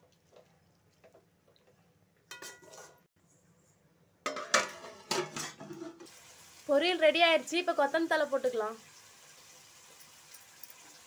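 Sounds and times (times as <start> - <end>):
steel plate clanking on metal pot: 4.3 - 6.1.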